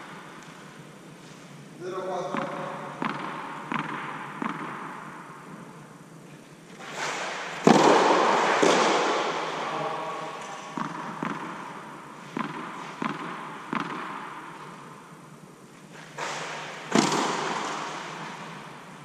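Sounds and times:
tennis ball bouncing on clay: 2.3 - 5.1, 10.7 - 11.7, 12.3 - 14.7
racket striking ball: 2.3 - 5.4, 7.1 - 9.6, 10.4 - 15.0, 16.2 - 18.7.

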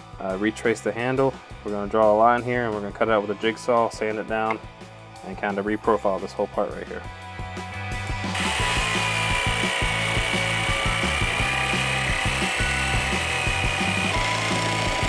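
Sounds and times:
jigsaw motor whine: 8.3 - 15.0
jigsaw blade rasping through wood: 8.4 - 15.0.

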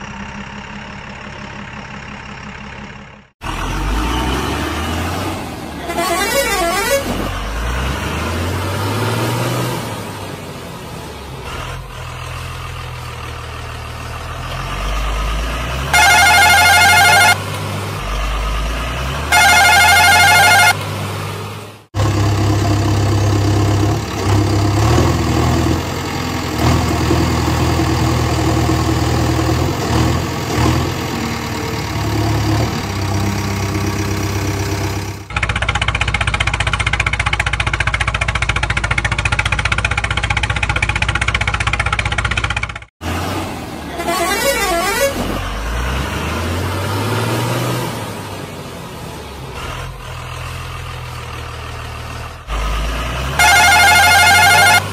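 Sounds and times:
vehicle engine running: 0.0 - 3.6, 10.6 - 42.9, 53.4 - 54.9
loud horn blasts: 5.8 - 7.3, 15.9 - 17.4, 19.3 - 20.8, 43.9 - 45.3, 53.4 - 54.9.

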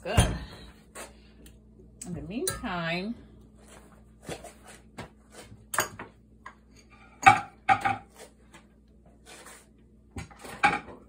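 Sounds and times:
dishes and utensils clattering: 6.8 - 8.1, 10.4 - 11.0.

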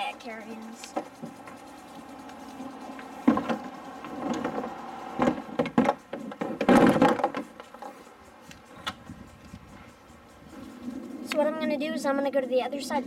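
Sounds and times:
kayak hull thumping on roof carrier: 5.2 - 7.4.

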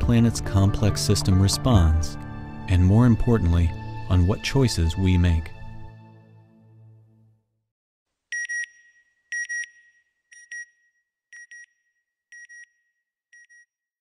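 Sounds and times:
music: 0.0 - 7.6.

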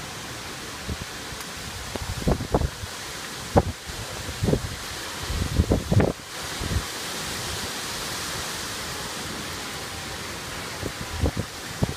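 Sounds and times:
wind and rain in trees: 0.0 - 11.9
wind buffeting microphone: 0.8 - 6.9, 10.8 - 11.9.

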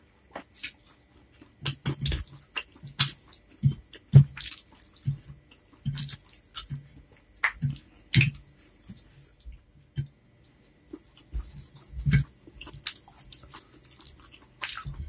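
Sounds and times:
wet chewing and slurping: 0.4 - 9.4, 10.9 - 15.0.

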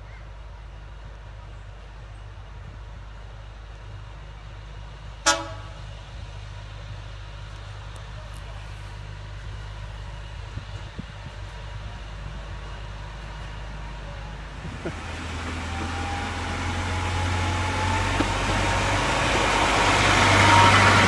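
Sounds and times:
low locomotive rumble: 0.0 - 21.0
locomotive horn toot: 5.2 - 5.8, 20.2 - 21.0.

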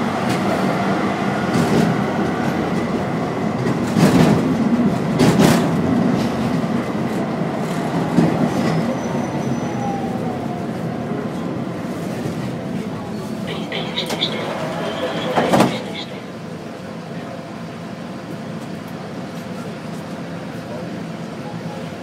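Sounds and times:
tram clattering: 0.0 - 22.0
tram wheels rumbling on rails: 0.0 - 22.0.

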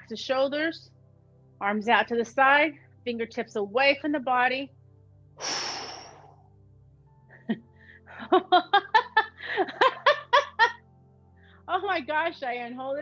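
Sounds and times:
faint background music: 0.0 - 13.0
breathy exhale: 5.4 - 6.5
woman laughing: 7.3 - 10.8.

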